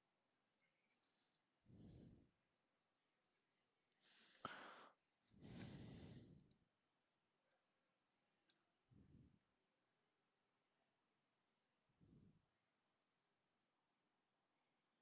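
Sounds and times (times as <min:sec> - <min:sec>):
faint breathing close to microphone: 0:01.0 - 0:02.4, 0:04.0 - 0:06.6.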